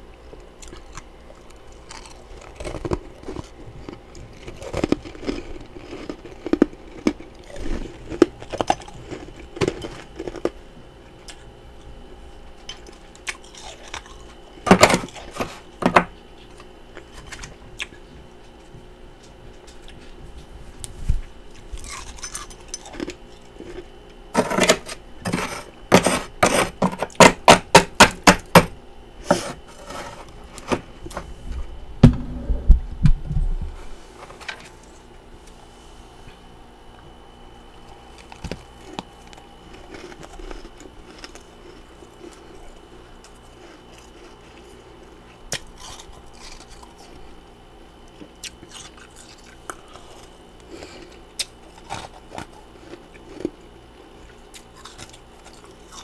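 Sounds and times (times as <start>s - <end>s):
metal spoon scraping frost: 24.4s - 26.8s.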